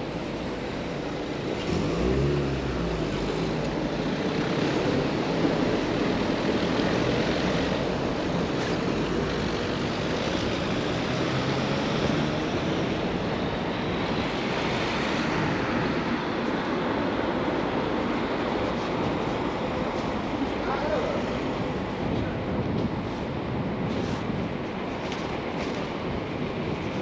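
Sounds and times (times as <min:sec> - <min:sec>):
city street traffic: 0:00.0 - 0:27.0.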